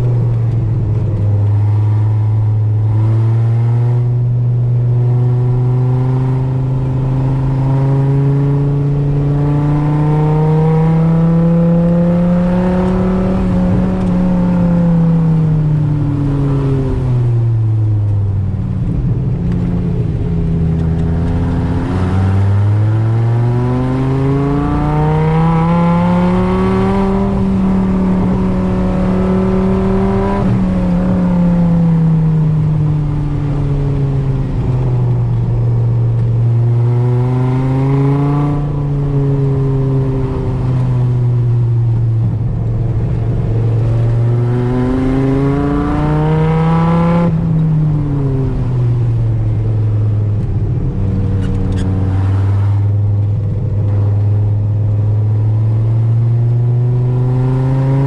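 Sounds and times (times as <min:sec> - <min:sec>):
engine revving in car cabin: 0:00.0 - 0:15.5, 0:19.6 - 0:32.7, 0:42.0 - 0:58.0.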